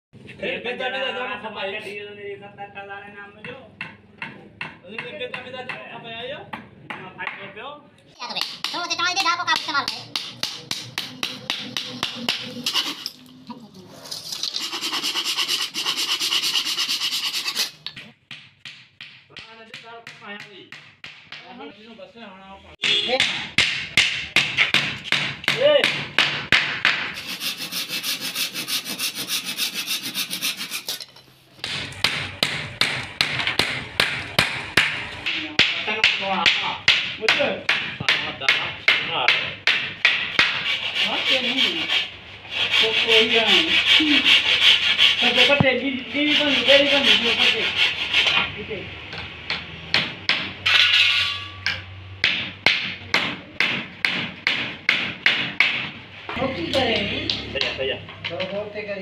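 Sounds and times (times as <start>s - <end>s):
hammer knocking on wood: 3.4s - 5.9s, 17.9s - 21.5s, 22.8s - 27.2s, 52.2s - 56.0s
hand saw cutting wood: 10.5s - 13.2s, 14.0s - 17.8s, 27.1s - 31.2s, 40.4s - 48.4s
hammer tapping wooden frame: 17.9s - 21.5s.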